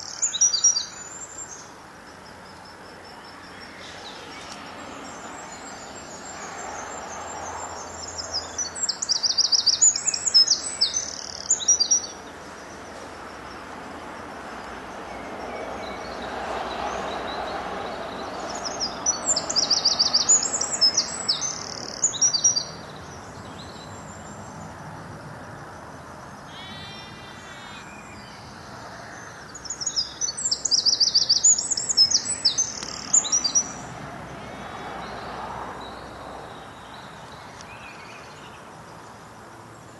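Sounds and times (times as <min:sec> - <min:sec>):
bird chirps: 0:00.0 - 0:01.7, 0:03.1 - 0:12.3, 0:17.0 - 0:24.4, 0:26.5 - 0:28.5, 0:29.5 - 0:33.8
songbird singing with trills: 0:00.0 - 0:12.9, 0:14.6 - 0:24.7, 0:26.4 - 0:33.9, 0:35.0 - 0:39.2.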